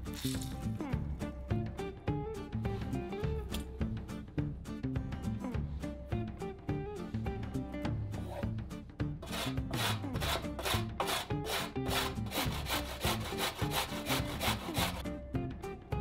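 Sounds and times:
background music: 0.0 - 16.0
carrot grating on metal grater: 9.2 - 15.0.

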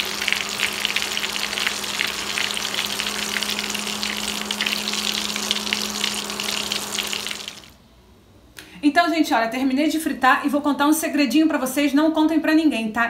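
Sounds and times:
patties sizzling in hot oil: 0.0 - 7.8.

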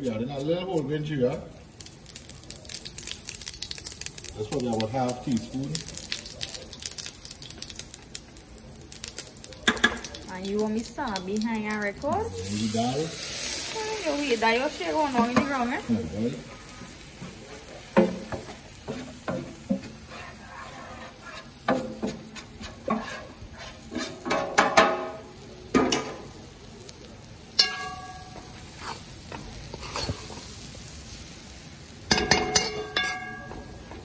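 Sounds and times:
faint sizzle of frying: 0.0 - 34.0
metal utensils scraping iron pot: 17.4 - 25.2, 29.7 - 30.3, 32.1 - 33.7.

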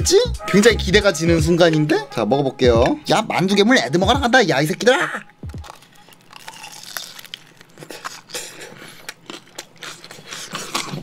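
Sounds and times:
crunchy dumpling chewing: 5.6 - 11.0.

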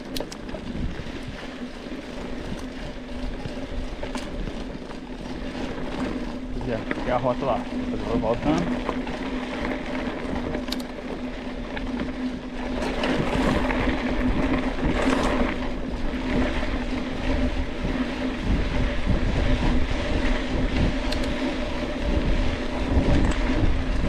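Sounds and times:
bike tyre and drivetrain noise: 0.0 - 24.0
wind on microphone: 12.8 - 24.0.

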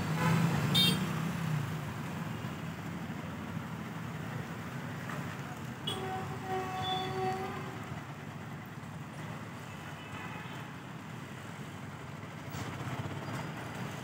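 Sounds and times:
train coaches rumbling on rails: 4.2 - 14.0.

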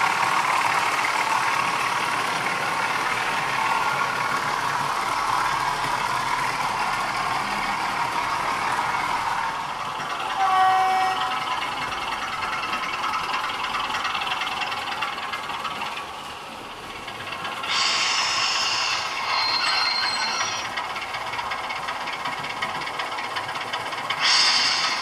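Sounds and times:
model locomotive motors whirring: 7.7 - 25.0
wagon wheels rattling on rails: 11.0 - 17.8
brief tone: 19.3 - 20.6.

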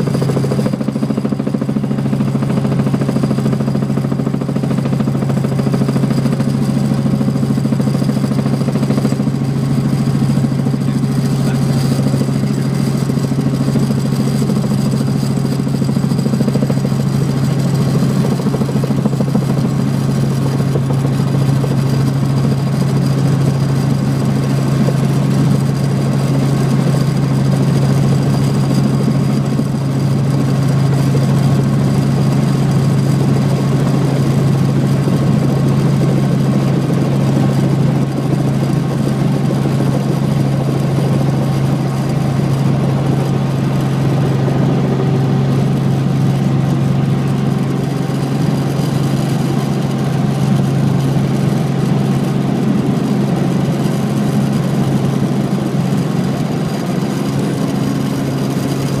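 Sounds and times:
helicopter engine and rotor drone: 0.0 - 59.0.

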